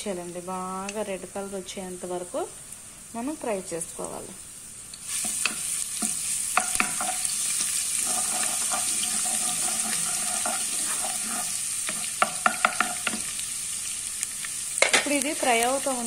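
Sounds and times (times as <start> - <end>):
garlic sizzling in hot oil: 0.0 - 16.0
wooden spoon knocking on pot: 5.5 - 7.2, 11.9 - 13.3.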